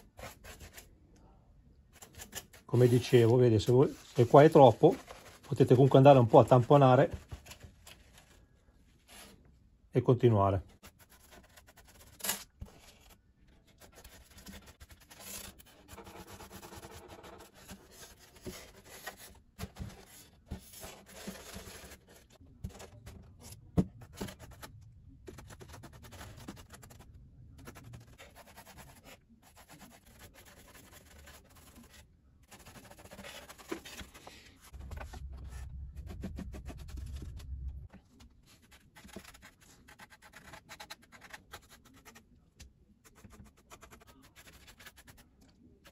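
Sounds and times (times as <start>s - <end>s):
low rumble: 34.7s - 37.9s
paintbrush scratching and rubbing: 35.0s - 37.8s.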